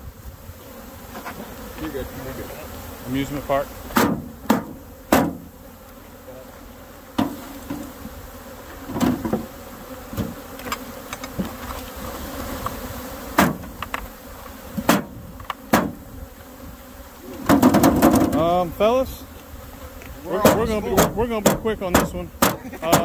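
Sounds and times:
bees buzzing: 0.0s - 23.0s
wooden boxes knocking: 17.4s - 18.4s, 20.4s - 23.0s.

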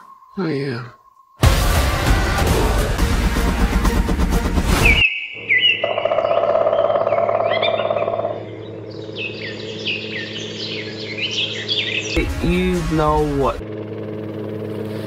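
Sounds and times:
birds chirping: 4.8s - 13.5s
steady low hum: 6.7s - 15.0s.

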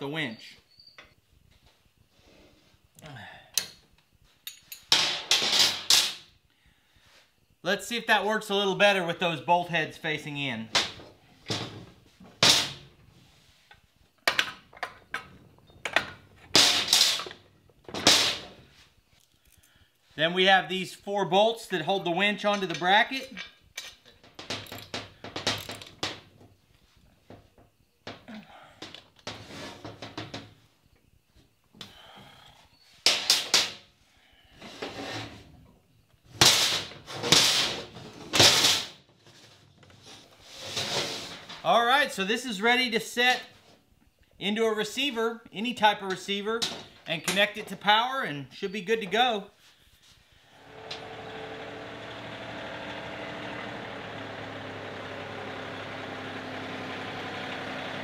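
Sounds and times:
metal clinks: 4.4s - 4.9s
metal parts clanking and scraping: 4.5s - 6.2s, 14.3s - 18.5s, 22.4s - 26.2s.

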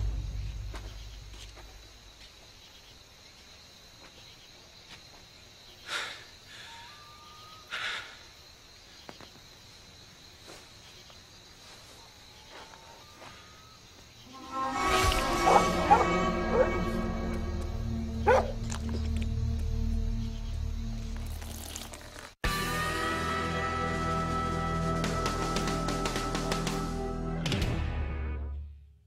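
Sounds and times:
crickets chirring: 0.0s - 22.4s
faint rising chirps: 12.4s - 21.4s
music: 14.3s - 21.8s, 22.4s - 29.0s.

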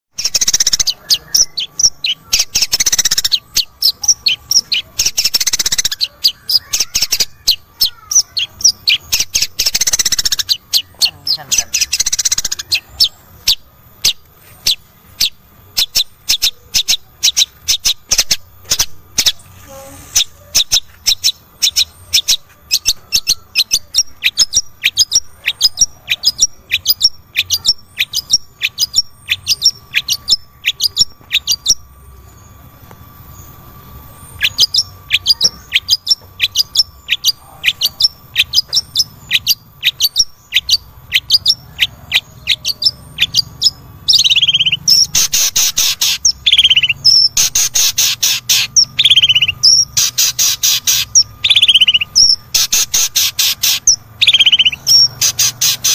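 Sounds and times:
bird giving sharp falling calls: 34.4s - 55.9s.

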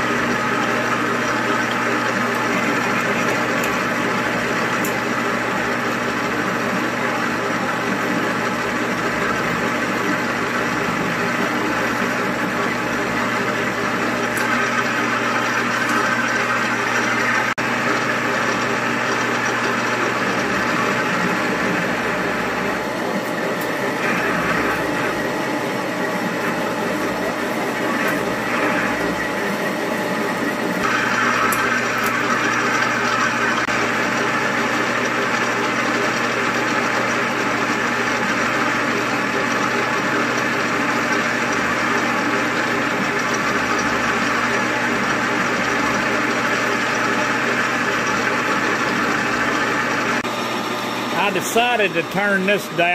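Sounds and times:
end mill cutting metal: 0.0s - 52.9s
metal lathe running: 0.0s - 52.9s
drill boring into metal: 26.6s - 52.9s.

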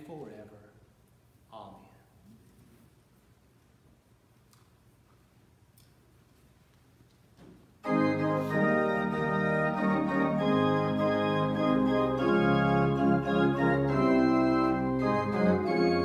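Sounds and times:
church organ playing chords: 7.8s - 16.0s.

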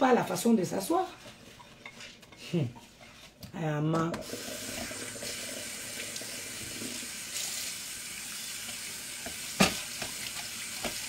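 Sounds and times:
kitchen noise hiss: 4.0s - 11.0s.

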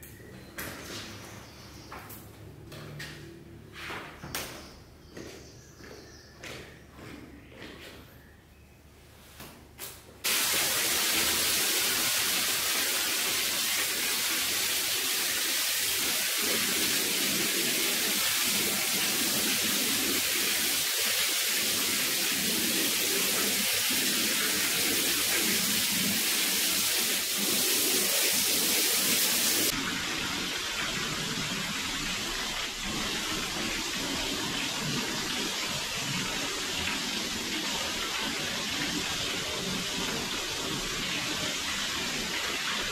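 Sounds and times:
water jet spraying onto rug: 10.2s - 29.8s.

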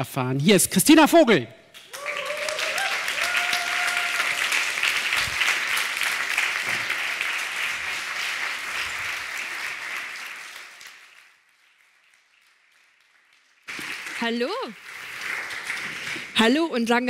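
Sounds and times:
audience applauding: 1.8s - 16.5s.

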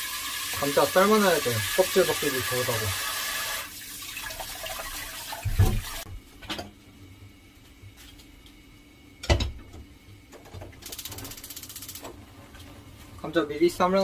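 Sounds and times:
kitchen tap running: 0.0s - 6.1s.

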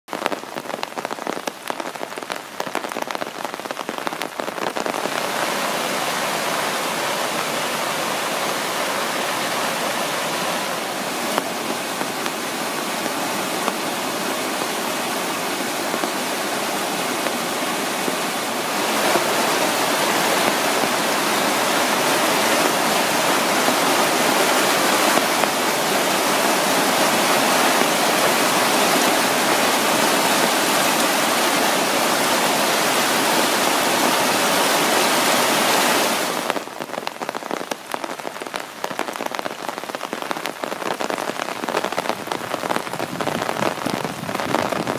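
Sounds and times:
rain pattering: 0.1s - 44.9s
rushing creek in flood: 0.1s - 44.9s.

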